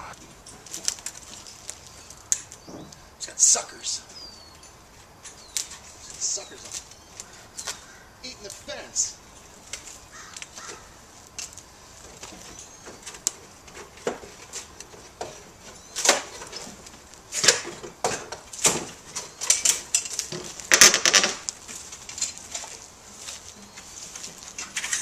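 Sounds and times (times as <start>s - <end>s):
wooden boards cracking and snapping: 15.9s - 22.8s.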